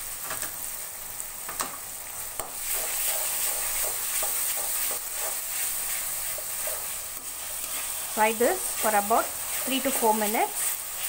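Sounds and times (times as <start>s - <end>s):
sauce sizzling in hot oil: 0.0s - 11.0s
steel spoon scraping a pan: 2.6s - 11.0s.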